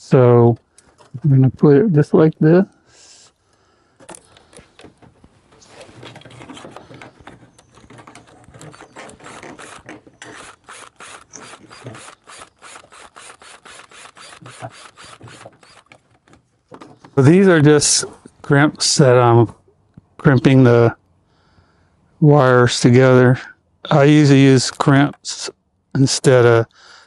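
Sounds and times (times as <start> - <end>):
cordless drill ratcheting clicks: 8.5 - 16.1.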